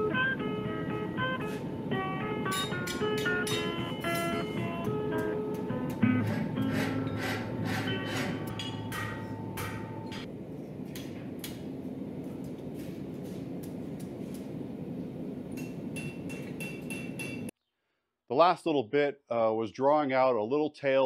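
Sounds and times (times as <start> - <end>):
hammer striking steel on anvil: 2.5 - 4.4, 6.2 - 10.3, 15.6 - 17.5.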